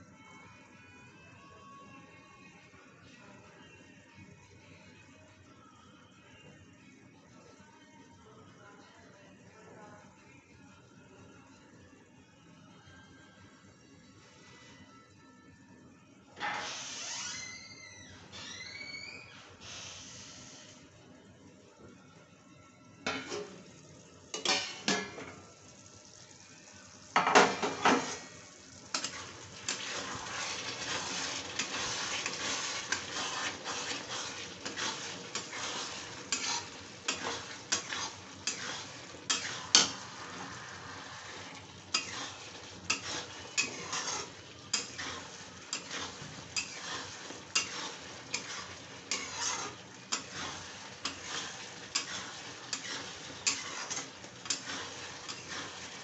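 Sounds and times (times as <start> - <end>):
food sizzling in a pan: 16.0 - 21.1, 23.0 - 56.0
metal spatula scraping pan: 28.9 - 56.0.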